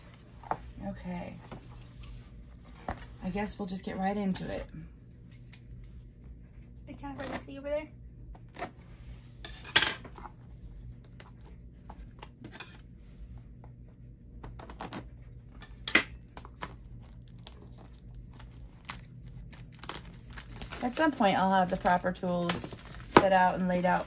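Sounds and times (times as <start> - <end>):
scissors snipping plastic wrap: 16.2 - 24.0
plastic wrap crinkling and tearing: 16.4 - 24.0.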